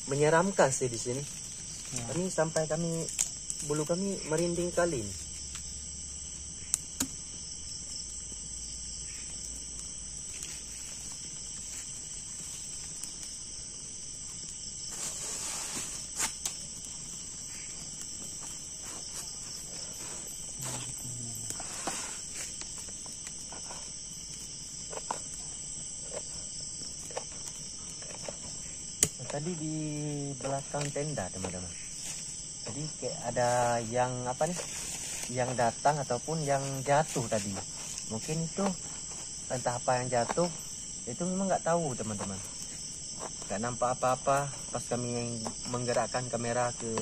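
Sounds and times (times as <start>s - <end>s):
night insects shrilling: 0.0s - 47.0s
short rustle: 14.9s - 16.5s, 34.5s - 35.4s.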